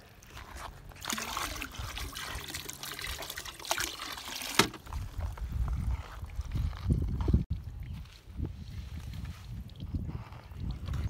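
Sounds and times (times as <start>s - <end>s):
water trickling: 0.3s - 4.6s.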